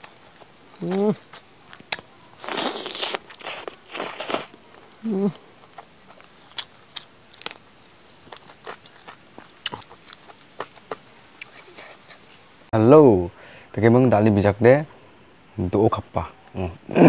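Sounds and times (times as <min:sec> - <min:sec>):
wet chewing clicks: 0:00.0 - 0:11.9
person biting food: 0:00.8 - 0:04.5
person humming: 0:05.0 - 0:05.4.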